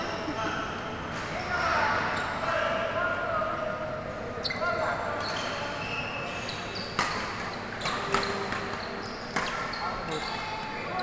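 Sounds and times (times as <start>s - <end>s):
shoes squeaking on court: 4.4s - 11.0s
rackets hitting shuttlecock: 7.0s - 8.8s, 9.4s - 9.7s.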